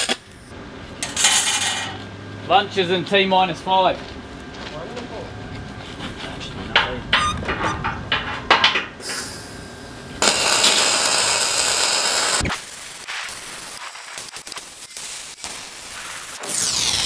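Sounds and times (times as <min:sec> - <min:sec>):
welder crackling sizzle: 0:10.2 - 0:17.0.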